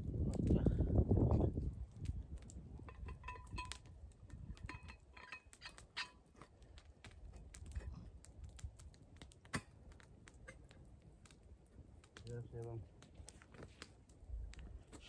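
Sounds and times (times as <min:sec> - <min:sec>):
campfire crackling: 0:00.0 - 0:15.0
metallic clinks of thermos: 0:02.8 - 0:06.2.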